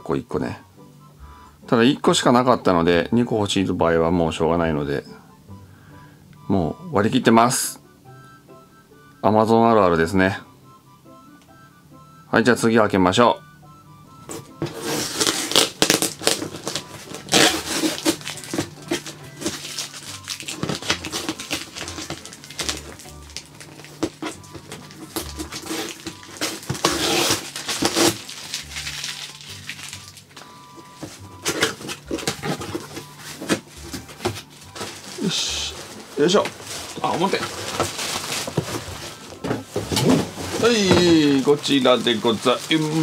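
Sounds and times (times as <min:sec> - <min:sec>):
quiet background music: 0:00.0 - 0:43.0
cardboard rustling and scraping: 0:14.2 - 0:30.2, 0:30.8 - 0:43.0.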